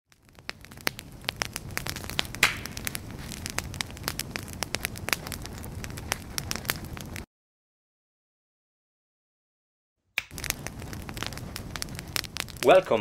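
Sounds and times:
wood fire crackling and popping: 0.1 - 7.3, 10.2 - 13.0.

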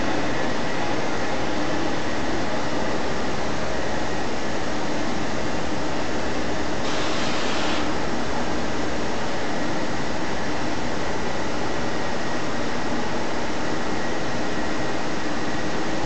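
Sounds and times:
industrial machinery hiss and hum: 0.0 - 16.0.

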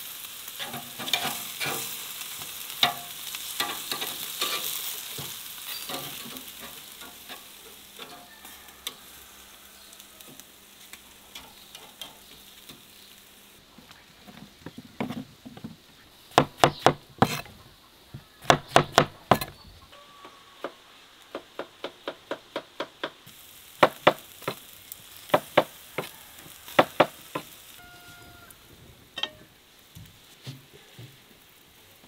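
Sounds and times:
faint sizzle on grill: 0.0 - 32.0
knife chopping on wooden board: 16.4 - 17.4, 18.4 - 19.5.

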